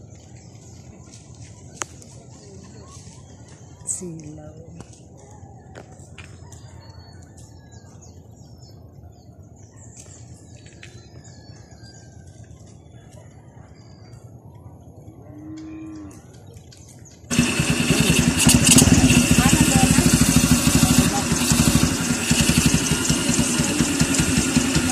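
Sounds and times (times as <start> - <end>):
loud motorcycle engine: 17.3 - 24.9.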